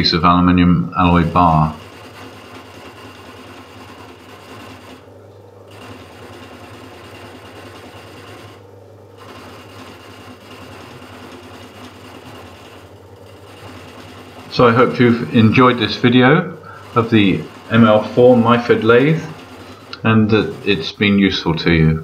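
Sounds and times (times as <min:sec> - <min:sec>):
lathe motor humming: 0:00.0 - 0:22.0
lathe tool cutting metal: 0:09.2 - 0:21.3.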